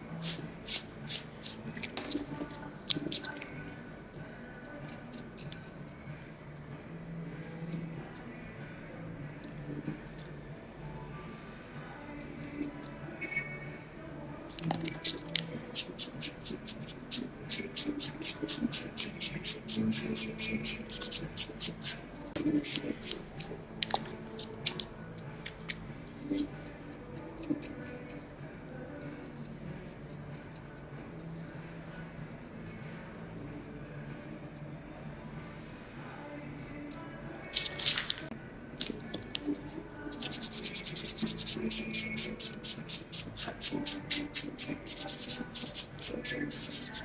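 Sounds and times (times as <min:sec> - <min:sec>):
nail tool scraping fingernail: 0:00.2 - 0:03.4, 0:14.5 - 0:22.0, 0:39.4 - 0:47.0.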